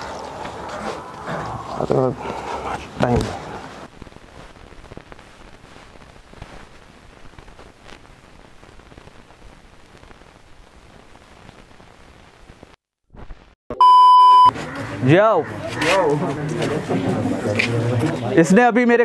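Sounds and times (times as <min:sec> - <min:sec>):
faint crackling static hiss: 0:00.1 - 0:13.6
loud steady beep: 0:13.7 - 0:14.5.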